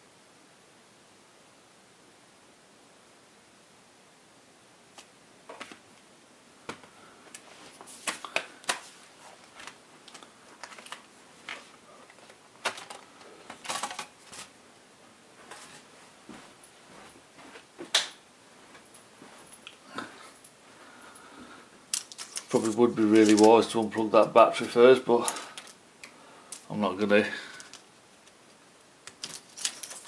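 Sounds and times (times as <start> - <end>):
laptop handling clicks and knocks: 10.6 - 14.5.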